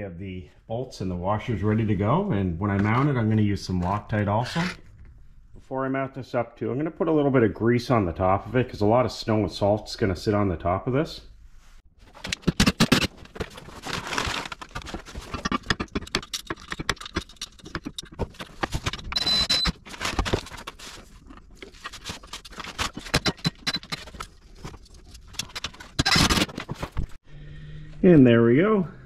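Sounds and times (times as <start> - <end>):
metal parts clinking and scraping: 12.1 - 26.9.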